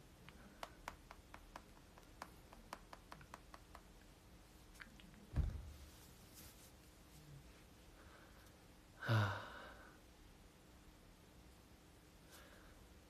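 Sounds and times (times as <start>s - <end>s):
fingers tapping a smartphone: 0.3s - 4.0s.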